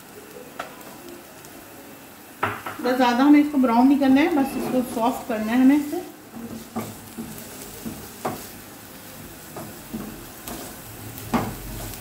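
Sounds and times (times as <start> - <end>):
onions sizzling in oil: 0.0 - 12.0
spatula tapping and scraping pan: 5.8 - 8.6, 9.4 - 12.0.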